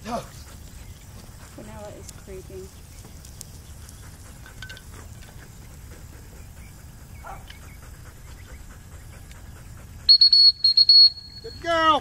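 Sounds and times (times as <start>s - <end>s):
dog whining: 7.2s - 7.9s.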